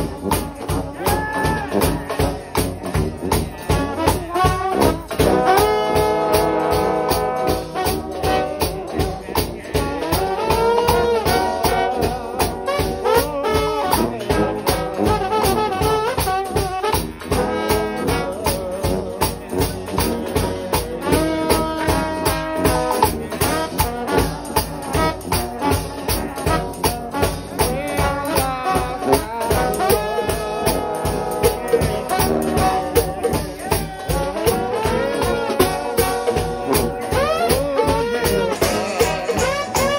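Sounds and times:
bass drum and cymbals beat: 0:00.0 - 0:39.9
trombones playing in harmony: 0:00.0 - 0:39.9
tambourine shaking: 0:15.0 - 0:39.9.

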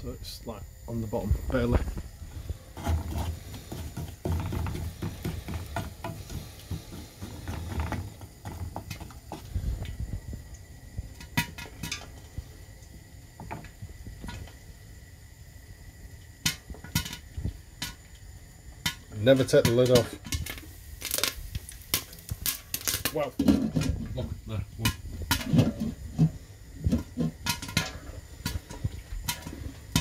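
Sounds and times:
popcorn sizzling in oil: 0:00.0 - 0:30.0
pans and spoon clattering: 0:23.4 - 0:24.0, 0:24.8 - 0:30.0.

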